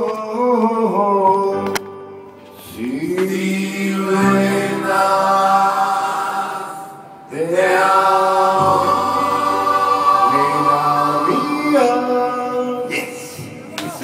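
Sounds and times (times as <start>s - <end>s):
man singing long notes: 7.3s - 13.4s.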